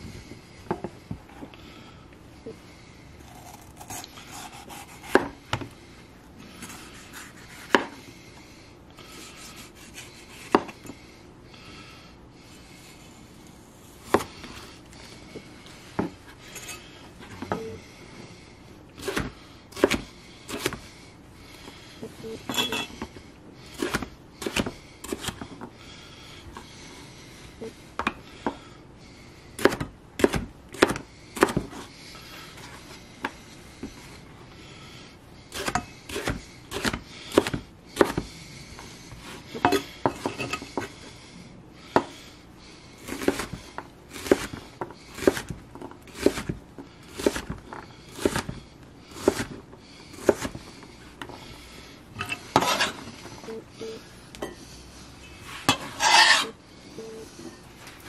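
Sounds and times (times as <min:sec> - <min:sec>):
knife scraping cutting board: 0:03.2 - 0:05.4, 0:06.6 - 0:08.0, 0:09.0 - 0:10.9, 0:52.2 - 0:53.2, 0:55.4 - 0:56.6
knife chopping on cutting board: 0:03.8 - 0:05.7, 0:07.1 - 0:08.0, 0:09.8 - 0:10.8, 0:19.0 - 0:20.8, 0:23.8 - 0:25.4, 0:29.6 - 0:31.8, 0:43.0 - 0:44.6, 0:45.2 - 0:45.5, 0:46.1 - 0:48.6, 0:49.2 - 0:49.6, 0:50.2 - 0:50.5.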